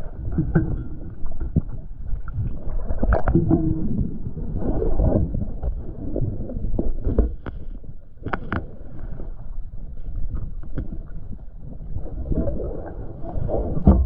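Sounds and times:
underwater clicks and knocks: 0.0s - 4.4s, 6.7s - 8.8s, 10.1s - 11.4s, 13.8s - 14.0s
low underwater rumble: 0.0s - 14.0s.

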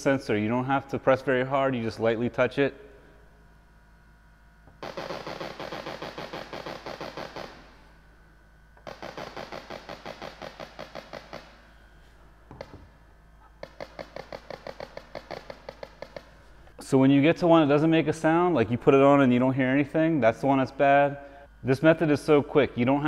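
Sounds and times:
parking sensor rapid clicking: 8.8s - 11.5s, 13.6s - 16.3s.

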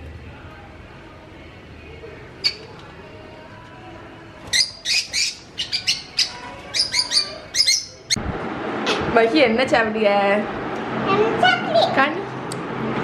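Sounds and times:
parrots chirping: 2.4s - 2.8s, 4.5s - 8.2s.

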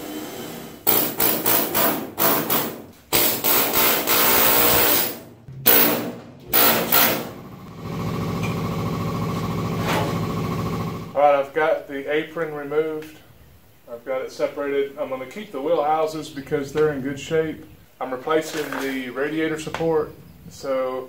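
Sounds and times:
power drill cutting sheet metal: 0.0s - 7.4s
steady low hum: 4.7s - 18.0s.

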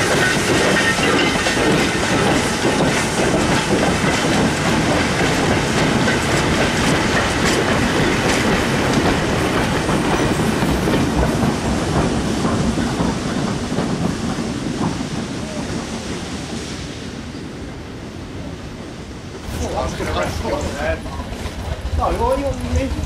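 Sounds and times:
wheels clanking over rail joints: 0.0s - 16.7s
goods train rolling past: 0.0s - 23.0s.

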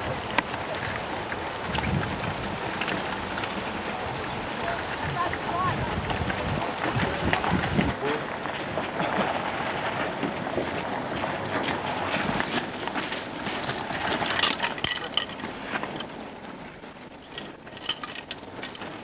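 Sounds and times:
outdoor noise: 0.0s - 19.0s
metal harness fittings clinking: 11.0s - 16.1s, 17.2s - 19.0s.

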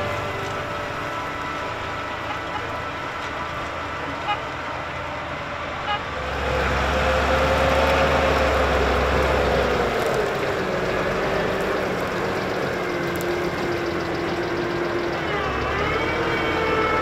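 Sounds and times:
tractor engine whining: 0.0s - 17.0s.

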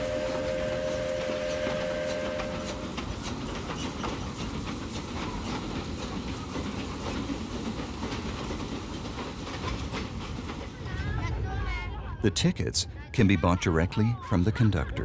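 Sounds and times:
steam train whistle: 0.0s - 2.9s
train wheels clattering over rails: 0.0s - 11.4s.

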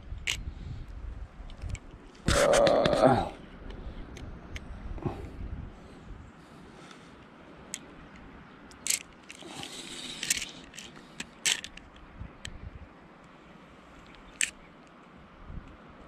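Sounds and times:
sharp clicks and scrapes: 7.7s - 12.6s.

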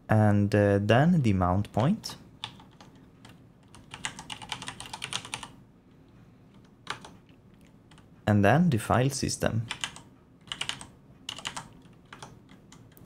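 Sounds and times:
typing on computer keyboard: 2.4s - 5.6s, 6.5s - 8.1s, 9.7s - 13.0s.

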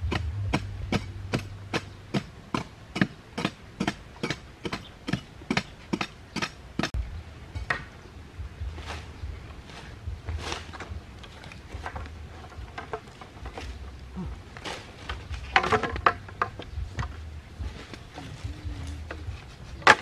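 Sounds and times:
hand scraping loose dirt: 8.5s - 20.0s.

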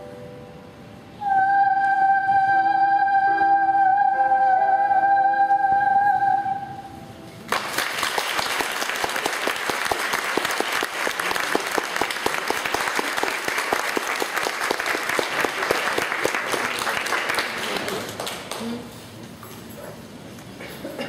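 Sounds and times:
audience applause: 7.5s - 18.9s.

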